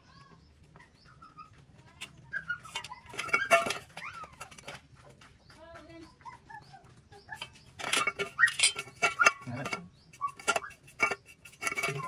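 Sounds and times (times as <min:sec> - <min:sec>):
metallic clicks and clinks: 0:02.0 - 0:04.8, 0:07.4 - 0:12.0.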